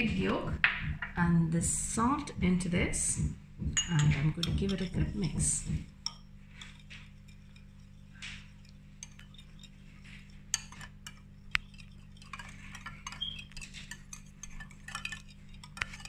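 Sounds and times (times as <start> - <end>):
whisk clicking against a bowl: 3.8 - 16.0.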